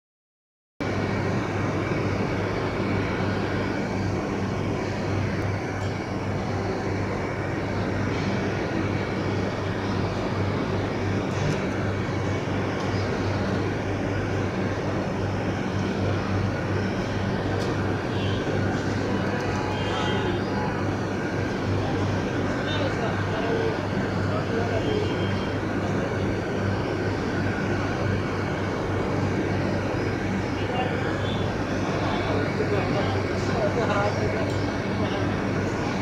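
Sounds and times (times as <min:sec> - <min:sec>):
low mechanical drone: 0:00.8 - 0:36.0.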